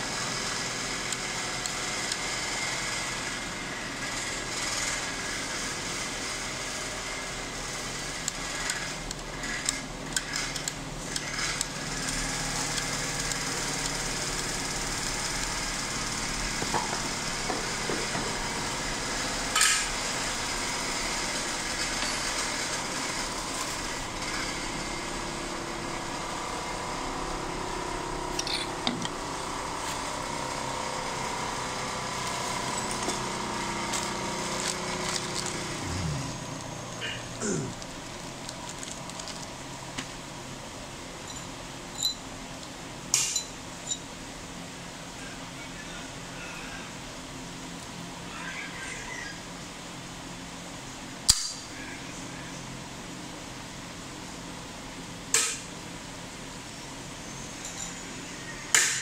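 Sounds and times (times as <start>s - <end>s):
sewing machine motor whine: 0.1s - 28.3s, 29.2s - 37.2s.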